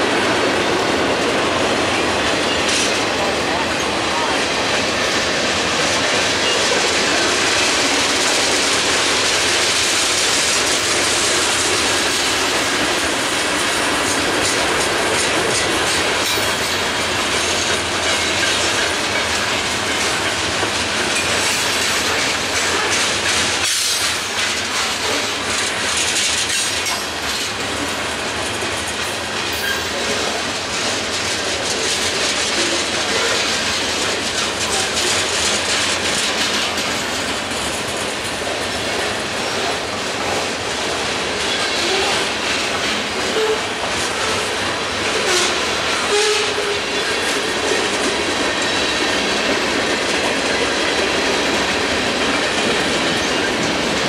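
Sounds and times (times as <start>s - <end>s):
freight train rolling past: 0.0s - 54.0s
wheels clickety-clack on rails: 0.0s - 54.0s.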